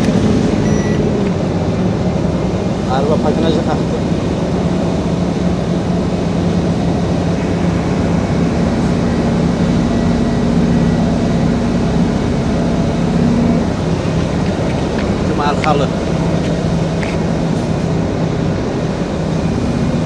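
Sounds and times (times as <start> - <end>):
diesel truck engine running: 0.0 - 20.0
road and tyre noise: 0.0 - 20.0.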